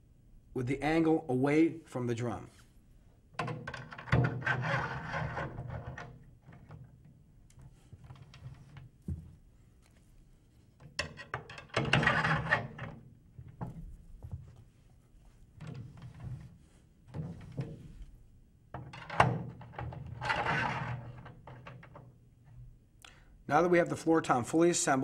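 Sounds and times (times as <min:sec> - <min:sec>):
metal scraping on metal: 0:04.2 - 0:06.1, 0:11.8 - 0:12.9, 0:20.0 - 0:21.3.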